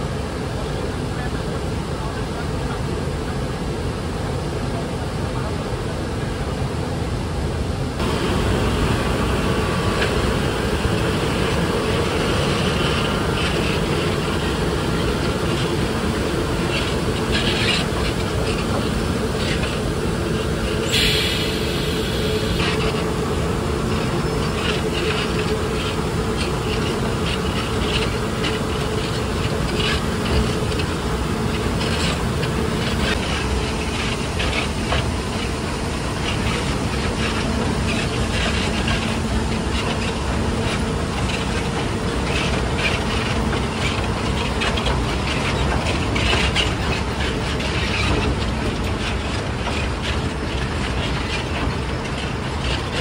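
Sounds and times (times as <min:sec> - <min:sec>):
diesel locomotive engine hum: 0:00.0 - 0:53.0
wheels clattering on track: 0:08.0 - 0:53.0.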